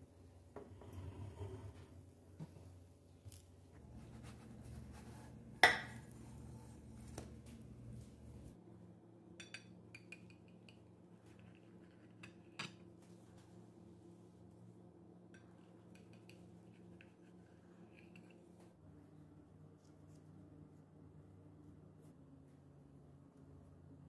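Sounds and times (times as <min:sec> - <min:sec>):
faint steady hum: 0:00.0 - 0:24.0
knife scraping a plate: 0:00.7 - 0:01.9, 0:03.9 - 0:07.2.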